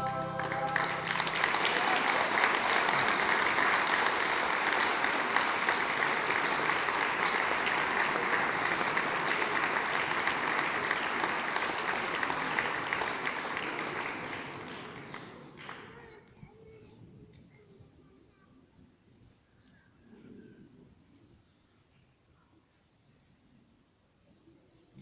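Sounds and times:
audience applauding: 0:00.0 - 0:16.1.

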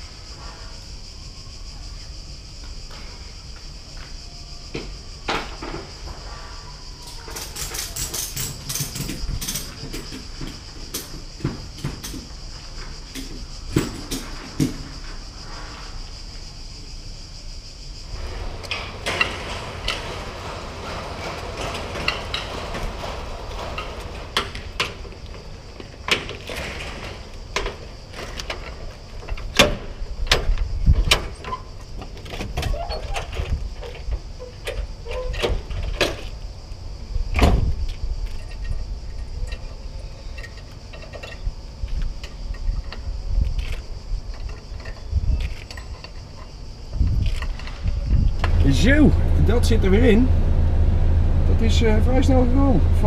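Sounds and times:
metal buckles clicking and rattling: 0:07.3 - 0:12.4, 0:37.9 - 0:46.6.

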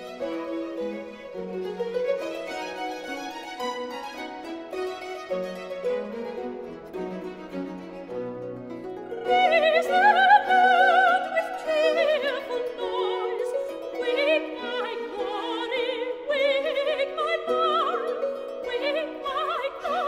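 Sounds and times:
string orchestra: 0:00.0 - 0:20.0
soprano singing with vibrato: 0:09.0 - 0:20.0.

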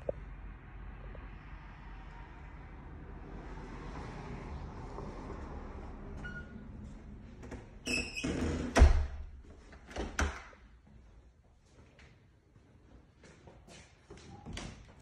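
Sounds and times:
door squeaking: 0:07.8 - 0:09.2.

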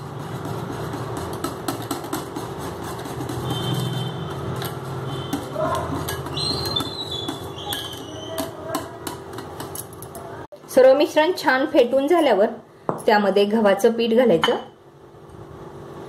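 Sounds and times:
whisk clicking against glass bowl: 0:00.3 - 0:09.8.

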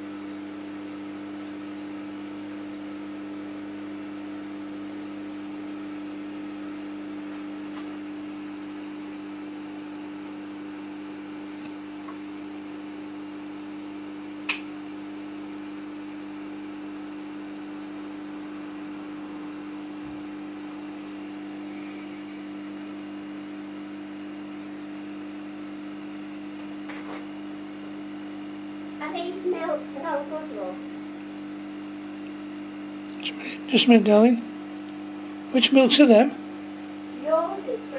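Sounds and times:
aquarium pumps humming: 0:00.0 - 0:37.9
sharp click: 0:14.4 - 0:14.7.

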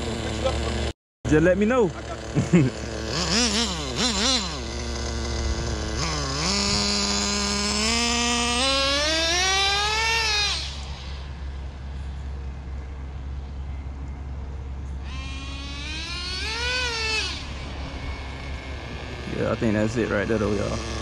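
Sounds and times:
nitro engine revving and whining: 0:00.0 - 0:12.2, 0:15.0 - 0:21.0.

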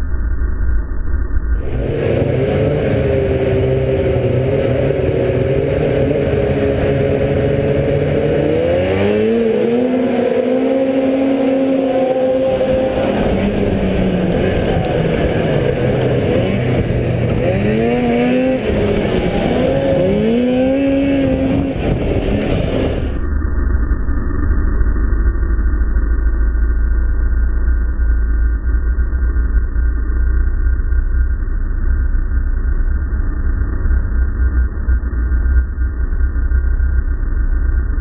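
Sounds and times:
snowmobile engines revving: 0:01.6 - 0:23.2.

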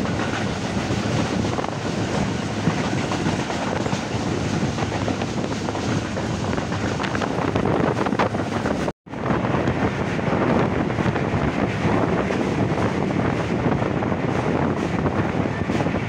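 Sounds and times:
train running noise: 0:00.0 - 0:16.0
wind buffeting microphone: 0:00.0 - 0:16.0.

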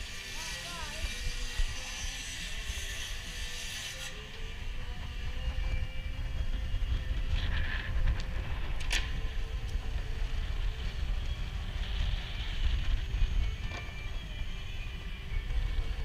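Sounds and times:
steady low rumble: 0:04.4 - 0:16.0.

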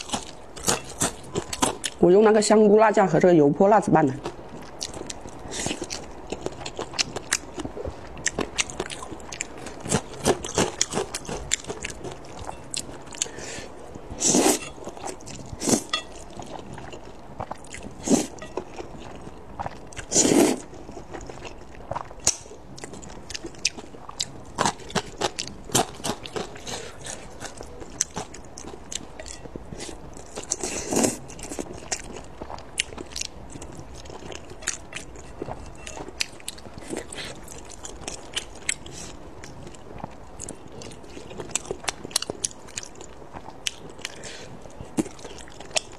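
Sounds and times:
wet chewing and mouth clicks: 0:00.0 - 0:02.1, 0:04.2 - 0:45.9.

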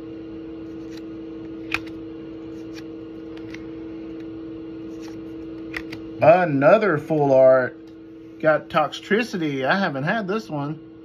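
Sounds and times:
steady hum: 0:00.0 - 0:11.0
trading cards snapping: 0:00.7 - 0:03.6, 0:04.9 - 0:06.0.

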